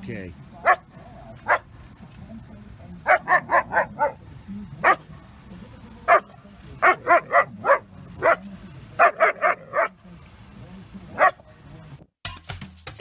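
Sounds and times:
puppy barking: 0.6 - 1.7, 3.0 - 4.2, 4.8 - 5.1, 6.1 - 10.0, 11.1 - 11.5.

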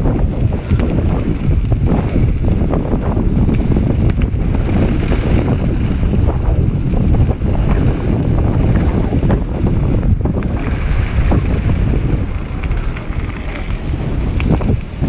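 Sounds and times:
bike rattling: 0.0 - 15.0
wind buffeting microphone: 0.0 - 15.0
tyres crunching on gravel: 10.2 - 15.0.

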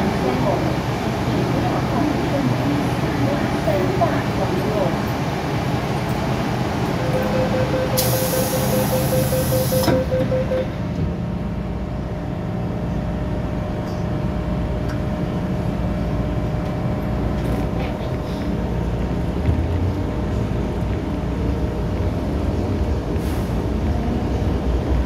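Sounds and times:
train running rumble: 0.0 - 25.0
rapid warning beeps: 7.0 - 10.7
train doors hissing shut: 7.9 - 10.3.

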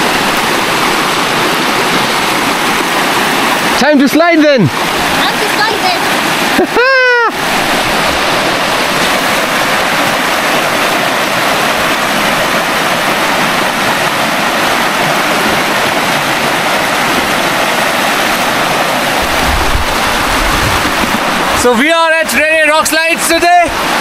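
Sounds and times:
water rushing over rocks: 0.0 - 24.0.

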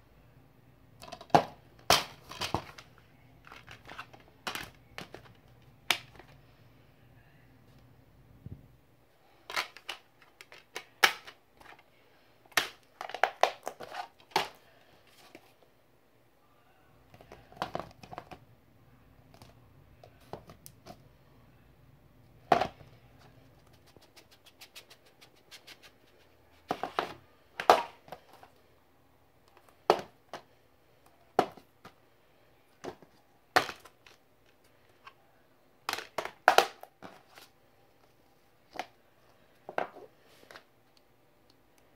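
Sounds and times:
plastic cases clicking and knocking: 1.0 - 6.4, 17.2 - 18.4, 29.5 - 30.5.

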